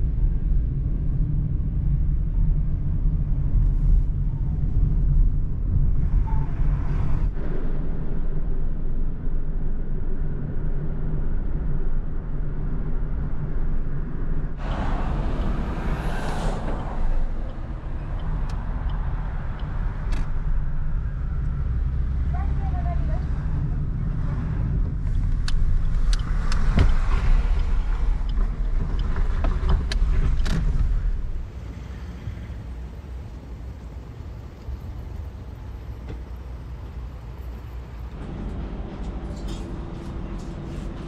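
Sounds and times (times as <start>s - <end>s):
car engine and road noise: 0.0s - 41.0s
rushing noise: 14.5s - 21.4s, 37.0s - 41.0s.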